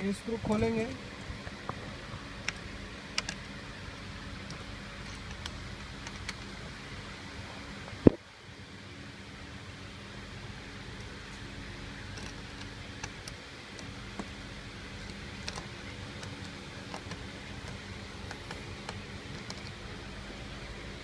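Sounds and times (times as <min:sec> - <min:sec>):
steady background hum: 0:00.0 - 0:21.0
small metal clicks: 0:04.4 - 0:06.5, 0:15.0 - 0:19.8.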